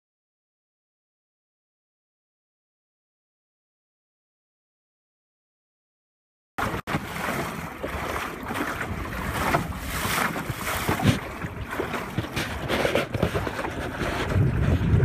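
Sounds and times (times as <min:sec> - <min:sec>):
water splashing along boat hull: 0:06.6 - 0:15.0
wind buffeting microphone: 0:07.0 - 0:15.0.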